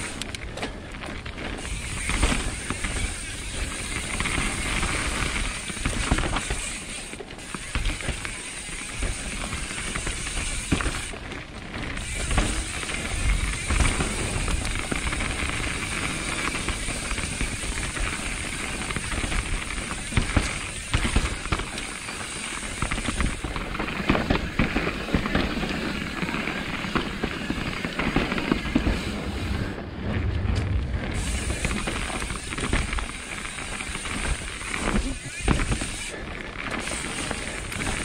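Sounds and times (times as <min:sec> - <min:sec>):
bike knocking and rattling: 0:00.0 - 0:38.0
bike tyres on dirt: 0:00.0 - 0:38.0
wind on microphone: 0:28.7 - 0:33.5.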